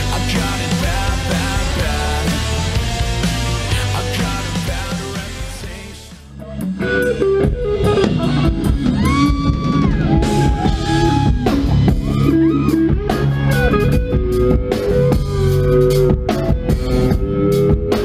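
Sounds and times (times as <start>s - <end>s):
bass guitar: 0.0s - 18.0s
drums: 0.0s - 18.0s
electric guitar solo: 6.8s - 16.1s.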